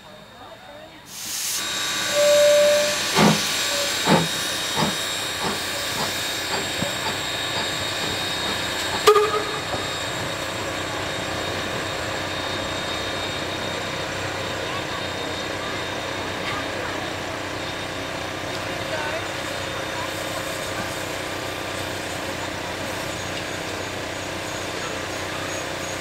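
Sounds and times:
steam hissing: 1.0s - 26.0s
steam locomotive exhaust beats: 1.1s - 26.0s
short tone: 9.0s - 10.2s.

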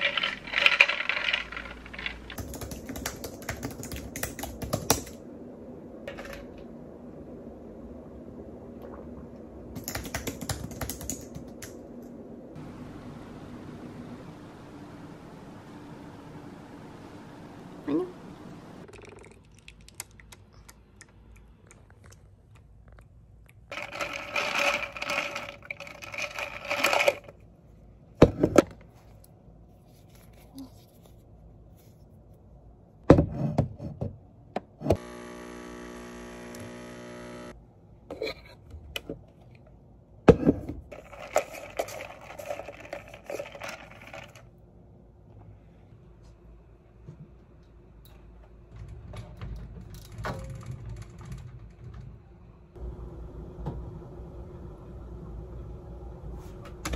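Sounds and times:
rattling noise: 0.0s - 2.4s, 23.7s - 27.4s
coffee machine buzzing hum: 35.0s - 37.6s.

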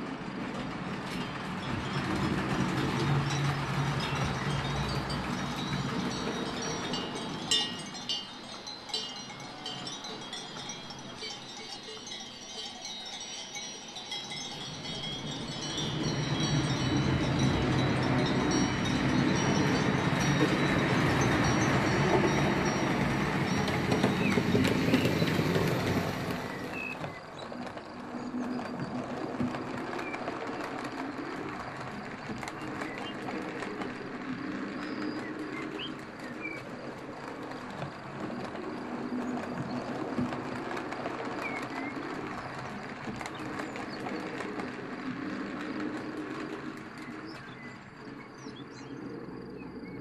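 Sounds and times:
model train running on track: 0.0s - 50.0s
small metal bells ringing: 1.1s - 27.0s.

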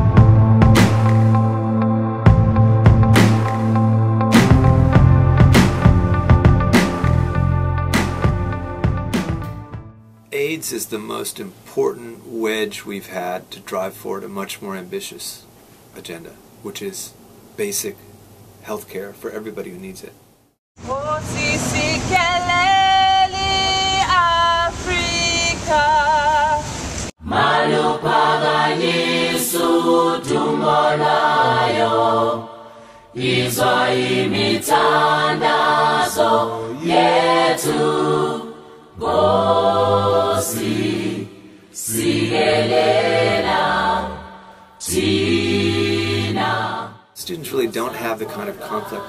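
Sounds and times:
person singing with vibrato: 20.8s - 49.0s
group singing in harmony: 27.2s - 49.0s.

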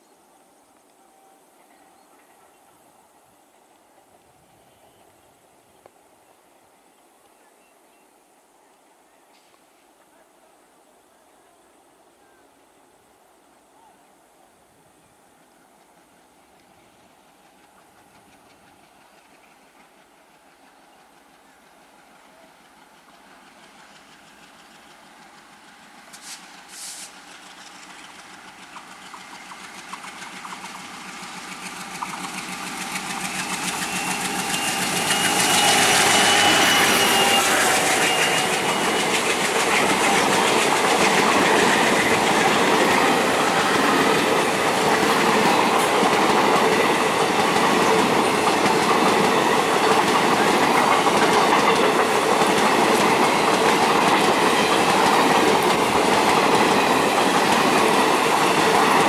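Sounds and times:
diesel locomotive passing: 14.7s - 59.0s
train coaches rumbling: 14.9s - 59.0s
wheels clacking over rail joints: 23.0s - 59.0s
thin high whine: 33.6s - 41.0s.

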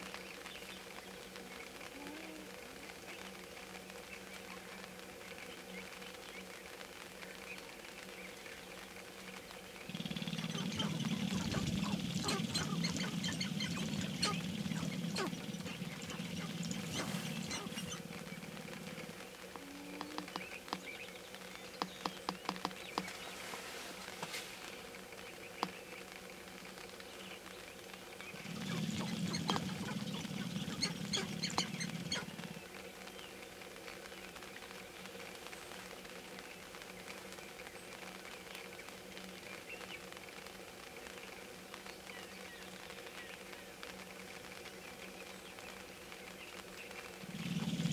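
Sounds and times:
grouse pulsing rattle: 8.0s - 47.9s
quick falling bird calls: 9.9s - 20.7s
grouse clucking calls: 9.9s - 21.0s, 28.2s - 32.8s, 46.9s - 47.9s.

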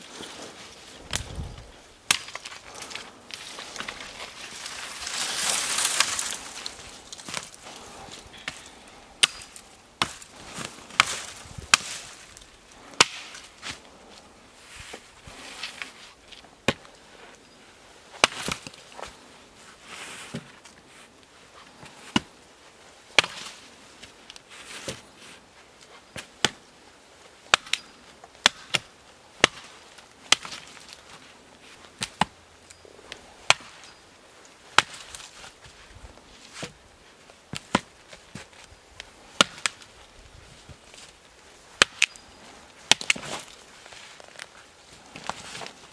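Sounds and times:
hatchet chopping branches: 2.1s - 3.0s, 8.4s - 12.1s, 13.0s - 13.8s, 18.2s - 18.8s, 23.2s - 23.5s, 27.5s - 30.9s, 33.4s - 34.0s, 34.7s - 35.3s, 39.3s - 39.8s, 41.8s - 43.6s.

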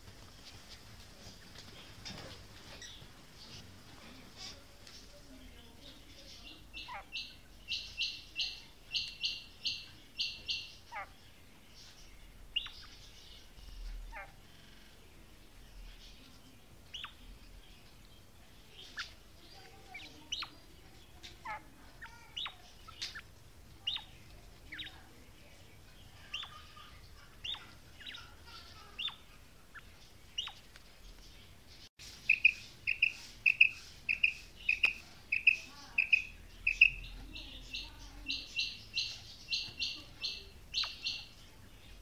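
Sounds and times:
quail calling: 32.3s - 41.3s.

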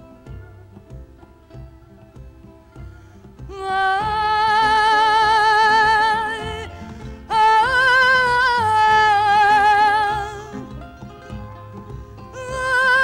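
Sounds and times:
plucked guitar: 0.0s - 13.0s
woman singing with vibrato: 3.4s - 10.9s, 12.2s - 13.0s.

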